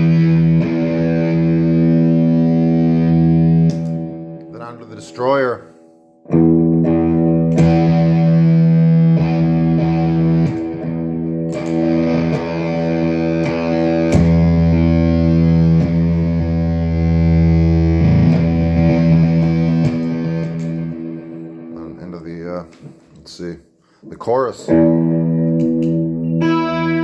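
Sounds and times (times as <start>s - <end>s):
distorted electric guitar chords: 0.0s - 5.2s, 5.9s - 23.0s, 24.6s - 27.0s.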